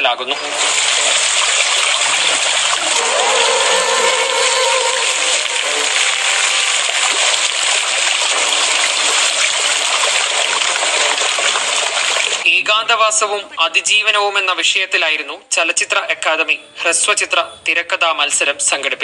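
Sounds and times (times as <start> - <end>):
flowing water rushing: 0.4 - 12.5.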